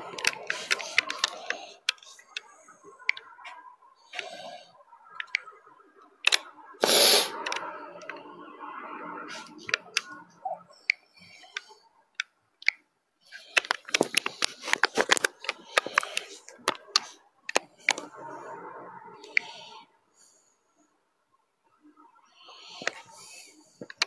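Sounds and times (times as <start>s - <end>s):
phone handling clicks and taps: 13.5s - 18.0s.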